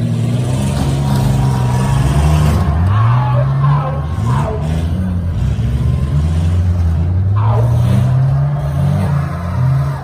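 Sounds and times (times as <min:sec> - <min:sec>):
truck engines revving: 0:00.0 - 0:10.0.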